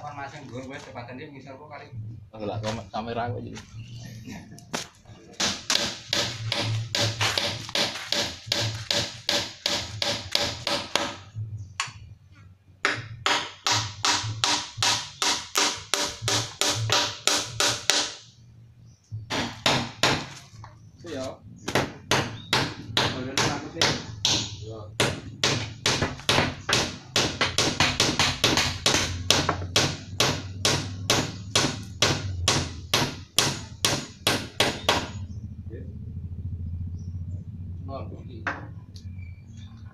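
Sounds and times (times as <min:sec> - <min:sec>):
hammer striking wood: 0:05.4 - 0:11.2, 0:12.8 - 0:18.3, 0:19.3 - 0:20.4, 0:21.7 - 0:35.2
hammer blows on wood: 0:12.8 - 0:18.2.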